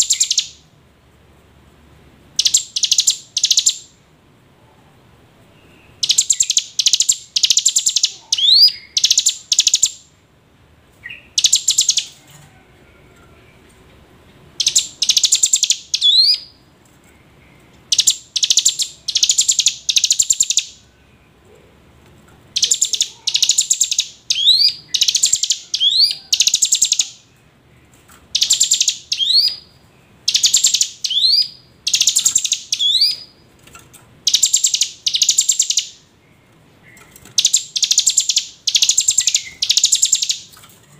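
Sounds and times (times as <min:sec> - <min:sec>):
bird calling with rattling notes: 0:14.2 - 0:20.7, 0:22.5 - 0:40.9.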